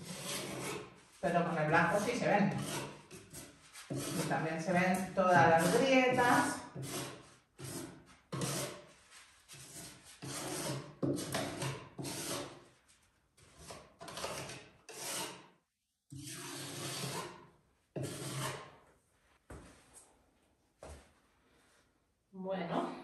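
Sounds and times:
putty knife scraping wood: 0.0 - 12.7, 13.4 - 18.8.

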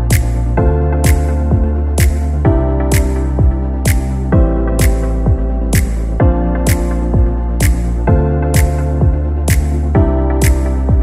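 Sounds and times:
clap or snare: 0.0 - 0.4, 2.0 - 2.2, 2.9 - 3.2, 3.9 - 4.1, 4.8 - 5.1, 5.8 - 6.1, 6.7 - 7.0, 7.6 - 8.0, 9.5 - 9.8, 10.4 - 10.7
held synth chords: 0.0 - 11.0
kick drum beat: 0.0 - 11.0.

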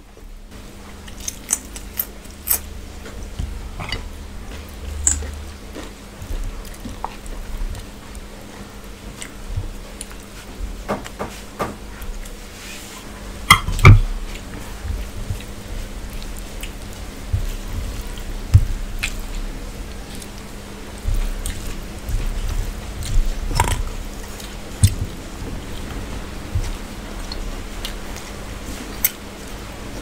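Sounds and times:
chewing: 0.9 - 10.6, 14.3 - 29.2
fingers mixing rice and curry: 12.0 - 30.0.

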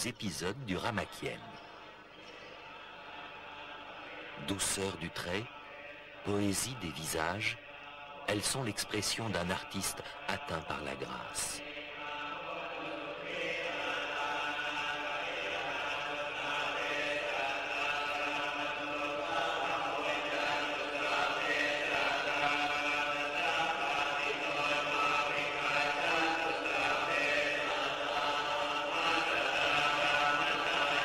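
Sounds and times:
monks chanting: 0.0 - 31.0.

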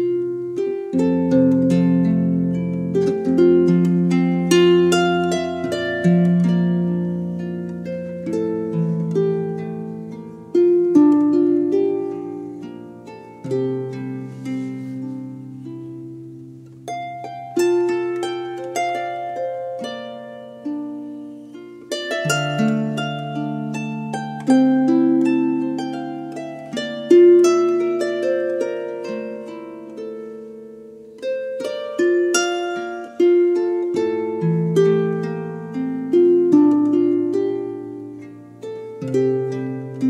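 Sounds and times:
plucked string melody: 0.0 - 40.0.

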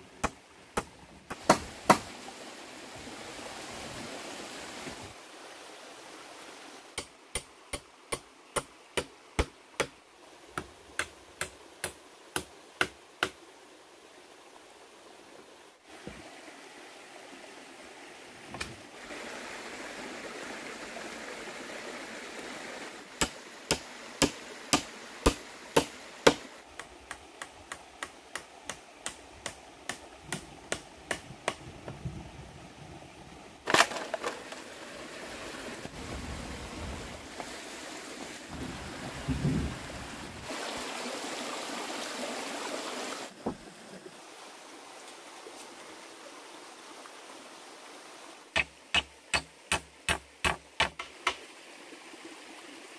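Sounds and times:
flowing water: 0.0 - 52.9.

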